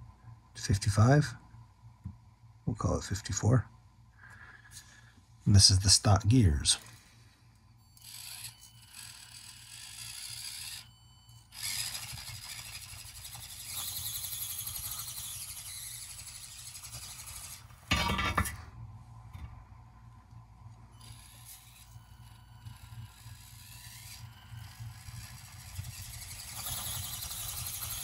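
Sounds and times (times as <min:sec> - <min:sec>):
small electric motor whirring: 0:06.4 - 0:18.0, 0:20.7 - 0:28.0.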